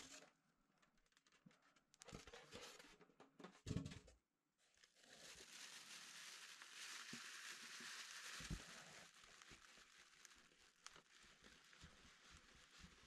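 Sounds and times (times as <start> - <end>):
plastic bag crinkling: 4.7 - 13.0.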